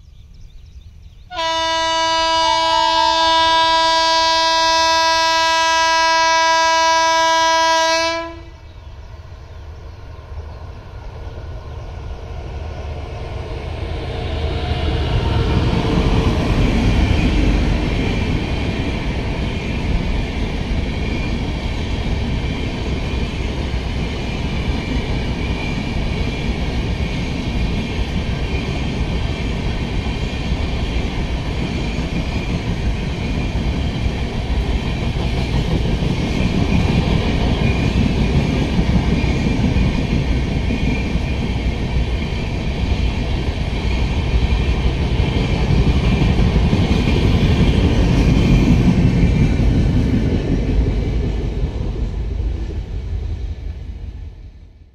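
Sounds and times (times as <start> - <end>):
train wheels clattering on rails: 13.3 - 52.8.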